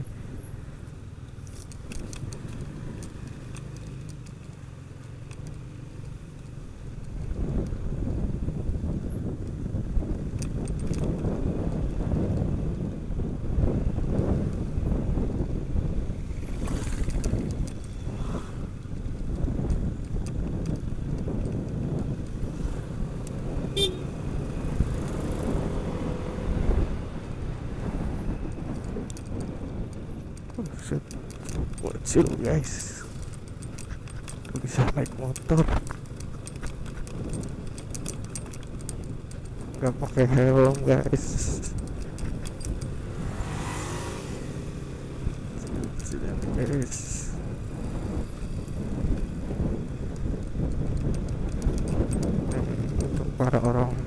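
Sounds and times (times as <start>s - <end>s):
scooter engine and road rumble: 0.0s - 54.0s
light clicks and rattles: 0.8s - 12.9s, 16.4s - 18.0s, 18.8s - 23.5s, 24.5s - 47.6s, 48.2s - 54.0s
horn toot: 23.7s - 24.2s.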